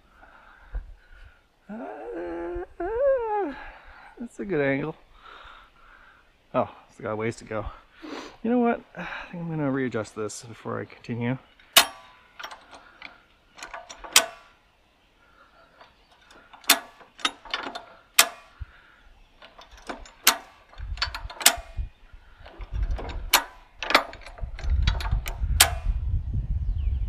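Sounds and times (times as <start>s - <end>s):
jack ratchet metallic clicks: 11.6s - 14.6s, 15.8s - 18.7s, 19.4s - 26.0s.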